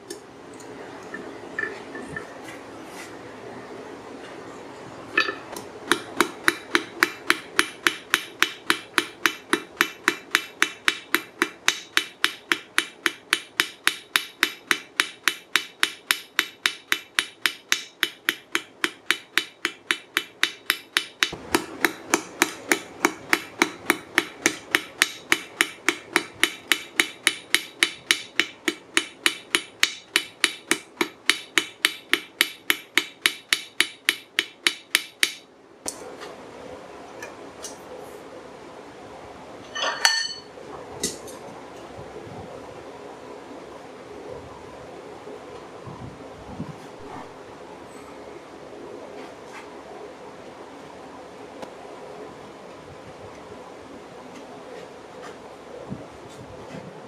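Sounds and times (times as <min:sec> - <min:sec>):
hammer striking steel on anvil: 0:05.2 - 0:35.4, 0:39.7 - 0:40.5.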